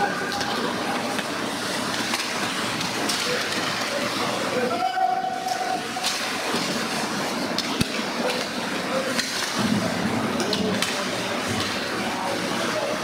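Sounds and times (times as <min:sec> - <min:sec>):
hockey sticks and puck clacking: 0:00.2 - 0:04.1, 0:07.5 - 0:11.9.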